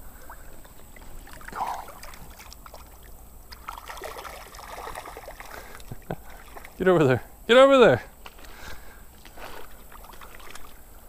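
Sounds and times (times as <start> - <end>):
creek trickling: 0.0 - 7.6, 8.2 - 11.0
fish splashing in water: 0.2 - 6.8, 9.3 - 10.9.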